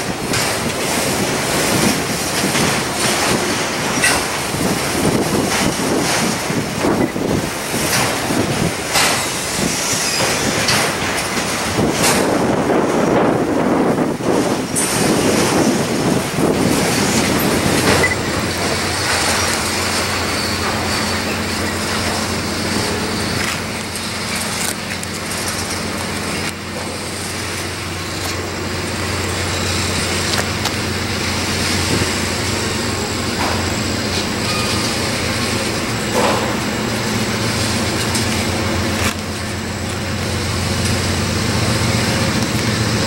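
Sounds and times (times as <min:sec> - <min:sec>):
freight train cars rolling on rails: 0:00.0 - 0:43.0.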